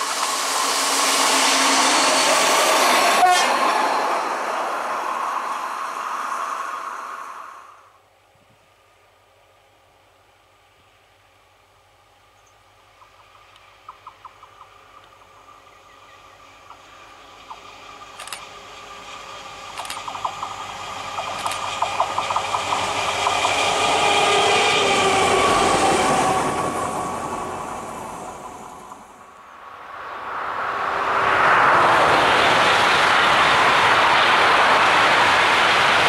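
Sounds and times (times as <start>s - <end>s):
diesel locomotive passing: 0.0s - 36.0s
sharp clicks: 17.5s - 18.5s, 19.7s - 20.6s, 21.2s - 23.5s.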